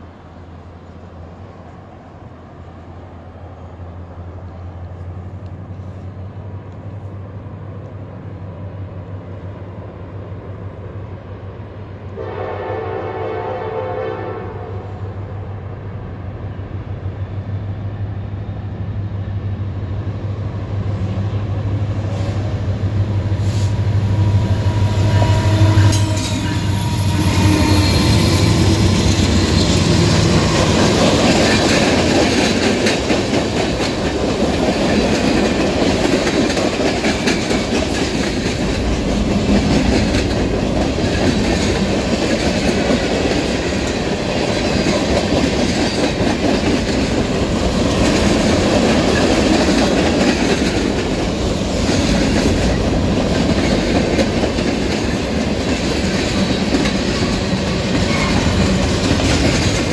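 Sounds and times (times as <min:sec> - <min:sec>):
train horn blast: 0:12.2 - 0:15.3, 0:23.4 - 0:29.7, 0:58.0 - 0:58.8.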